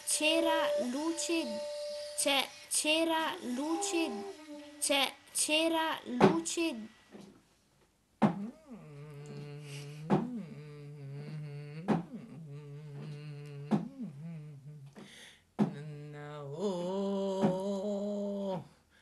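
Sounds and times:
person humming low notes: 0.0 - 2.2, 3.4 - 4.6, 8.2 - 15.0, 15.6 - 18.7.

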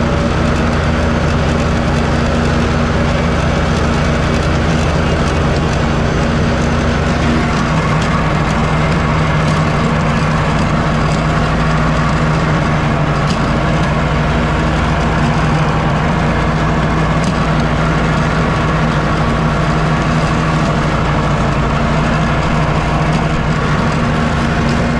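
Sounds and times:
riding mower engine: 0.0 - 24.9.

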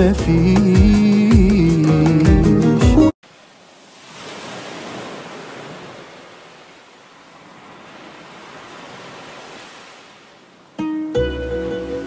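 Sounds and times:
ocean waves washing in: 3.2 - 12.0.

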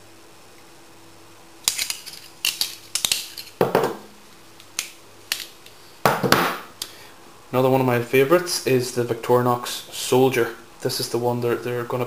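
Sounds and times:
knock on wooden table: 3.6 - 4.1.

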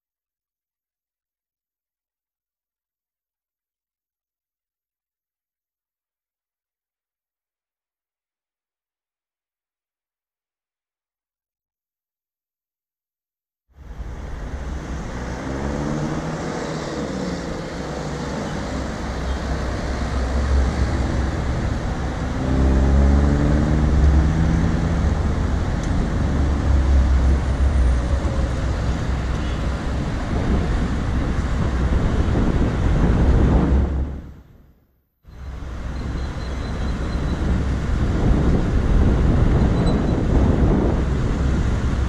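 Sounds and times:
passing vehicle engines: 13.8 - 34.4
traffic rumble: 13.8 - 34.4, 35.3 - 42.0.

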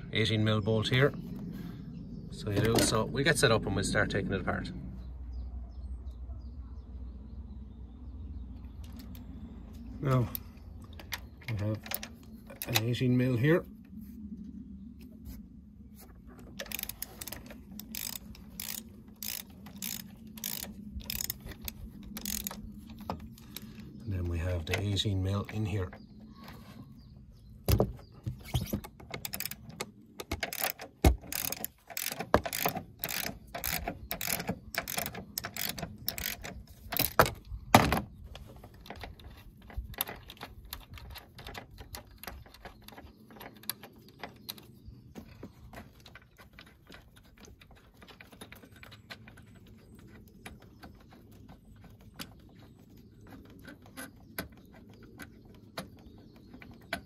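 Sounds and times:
ratchet wrench clicking: 16.6 - 22.6, 30.3 - 37.2.

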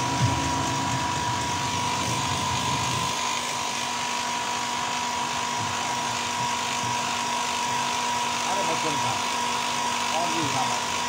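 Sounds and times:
low rumble: 0.0 - 3.1
compressor whining: 0.0 - 11.0.

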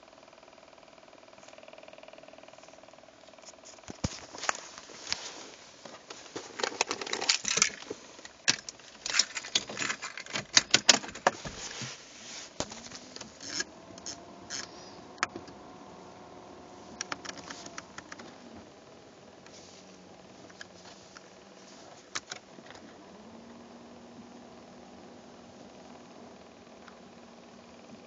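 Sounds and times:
faint hum rising in pitch: 0.0 - 28.0
plastic clicks and rattles: 6.1 - 11.4, 17.0 - 18.3.

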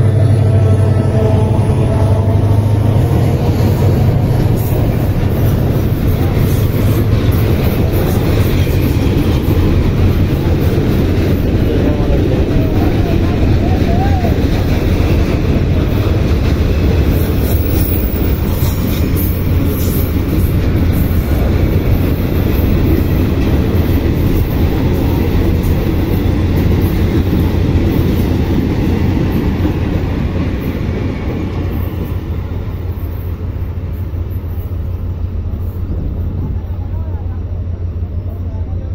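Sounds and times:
freight train wheels rumbling: 0.0 - 38.9.

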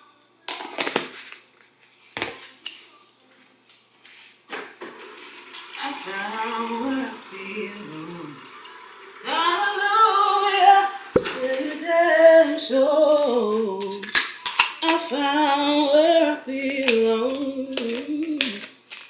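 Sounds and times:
woman singing unaccompanied: 5.7 - 8.6, 9.2 - 14.2, 14.8 - 18.8.

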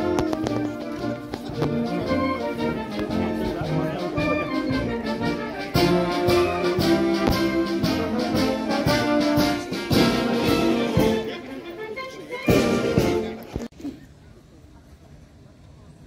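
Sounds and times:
military brass band playing: 0.0 - 13.5.

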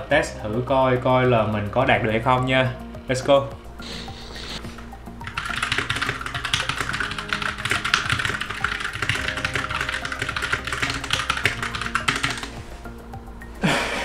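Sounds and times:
fast typing on keyboard: 5.2 - 12.6.

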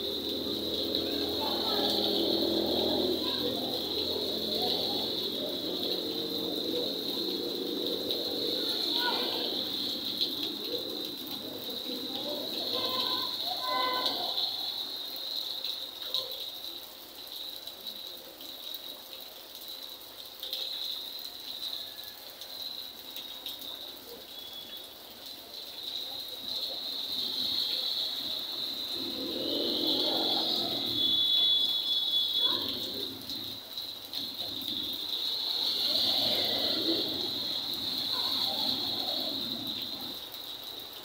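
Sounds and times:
vehicle passing on wet road: 0.0 - 14.9, 26.1 - 41.0
drips and splashes: 0.0 - 41.0
rain hissing: 0.0 - 41.0.

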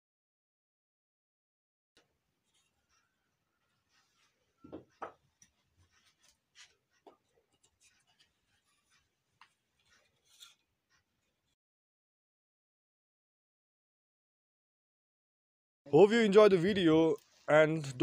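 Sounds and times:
wooden object handled in hands: 2.3 - 11.6.

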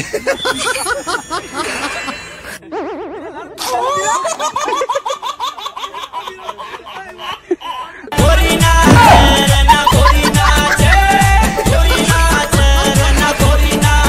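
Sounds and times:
high-pitched laughter: 0.0 - 8.2, 9.3 - 12.4.

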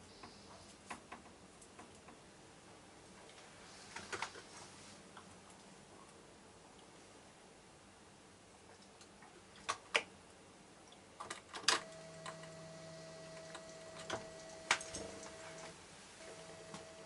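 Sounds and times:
feeder motor humming: 11.8 - 17.0.

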